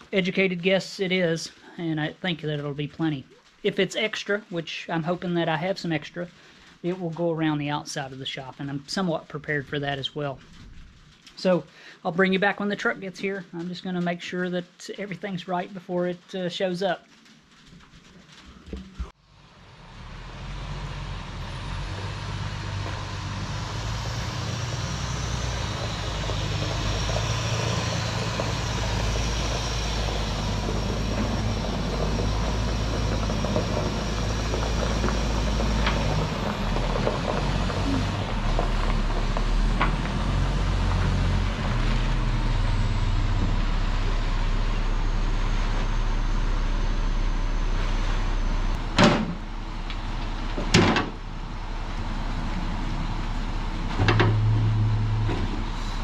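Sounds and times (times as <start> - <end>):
diesel engine running: 19.0 - 56.0.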